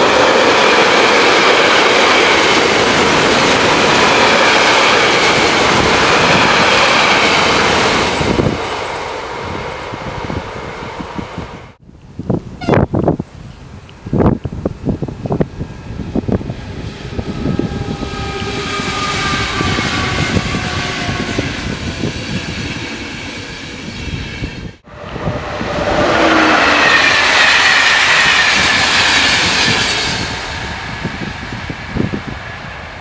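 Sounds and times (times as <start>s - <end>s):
train electric whine: 14.9s - 33.0s.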